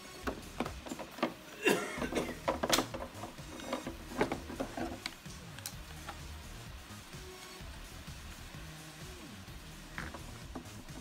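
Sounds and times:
hard plastic clicks and knocks: 2.1s - 5.2s.

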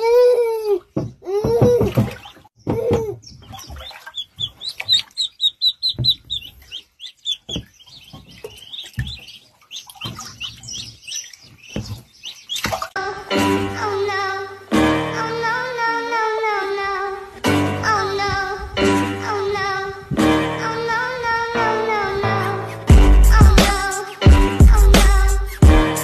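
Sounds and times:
baby vocal sounds: 0.0s - 1.9s
ducklings peeping: 2.0s - 12.9s.

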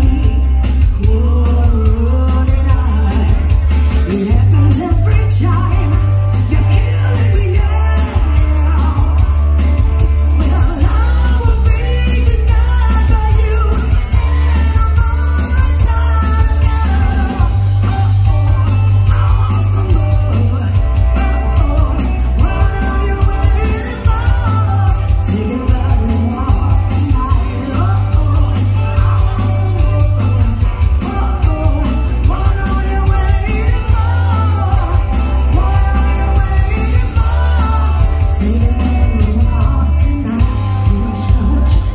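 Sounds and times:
drum kit with cymbals: 0.0s - 41.9s
electric bass line: 0.0s - 41.9s
electric guitars: 0.0s - 41.9s
woman singing lead: 0.0s - 41.9s.

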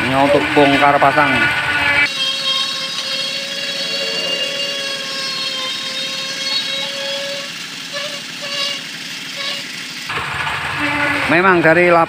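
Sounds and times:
whining note: 0.0s - 9.8s
small engine chugging: 0.0s - 12.0s.

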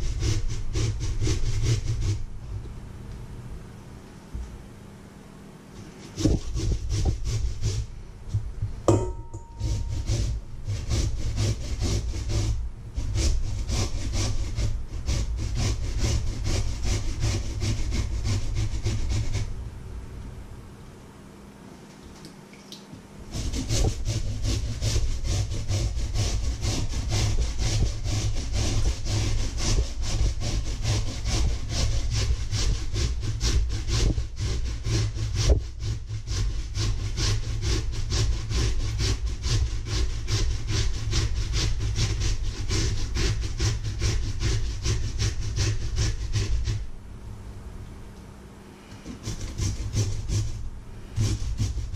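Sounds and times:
potato grating on metal grater: 0.0s - 2.3s, 5.8s - 8.0s, 9.1s - 19.5s, 23.3s - 46.9s, 48.9s - 51.9s.

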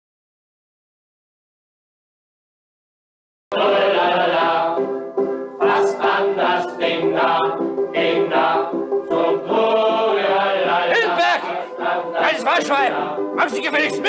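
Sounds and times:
men singing together: 3.5s - 4.9s, 5.6s - 14.0s
instrumental accompaniment: 3.6s - 14.0s.

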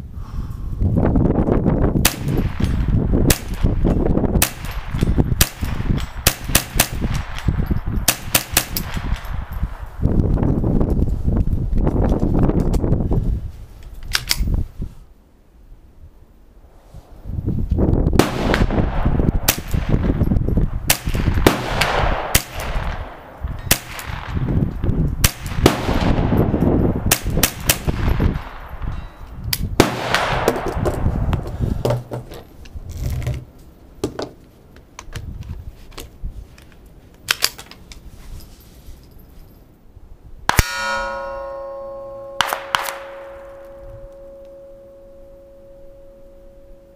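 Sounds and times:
rifle shots: 2.0s - 3.8s, 4.4s - 7.5s, 8.1s - 9.4s, 18.2s - 20.2s, 20.9s - 24.5s, 25.2s - 26.4s, 27.0s - 28.7s, 29.8s - 31.0s, 42.4s - 43.6s.

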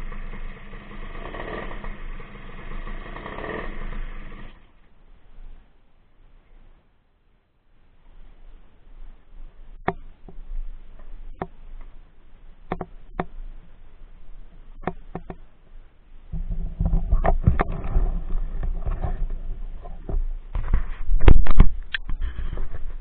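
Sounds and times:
low rumbling rubbing noise: 0.0s - 4.7s, 16.2s - 23.0s
microphone handling clicks: 16.3s - 23.0s.

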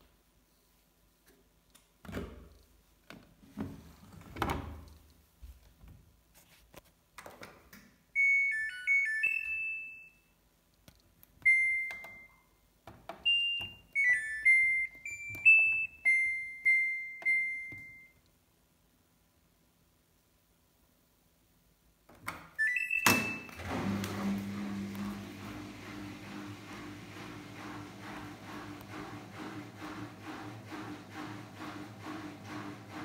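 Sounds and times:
washing machine electronic tune: 8.2s - 10.2s, 11.4s - 12.5s, 13.2s - 18.2s, 22.6s - 33.0s
washing machine beeps: 8.2s - 10.4s, 11.4s - 12.6s, 13.2s - 18.2s, 22.6s - 33.0s.

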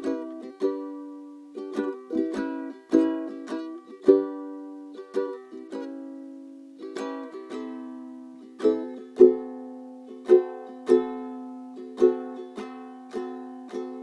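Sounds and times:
ukulele strumming chords: 0.0s - 14.0s.

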